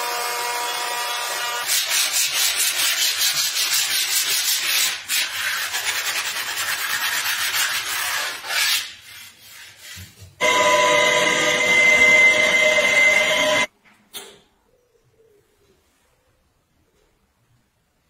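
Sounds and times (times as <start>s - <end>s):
sandpaper rubbing on wood: 1.6s - 10.3s
electric router whining: 10.4s - 13.7s.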